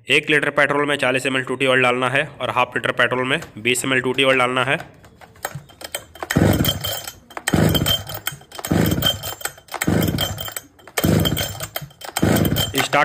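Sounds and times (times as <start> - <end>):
chainsaw recoil starter pulled: 3.3 - 13.0
engine turning over: 3.4 - 13.0.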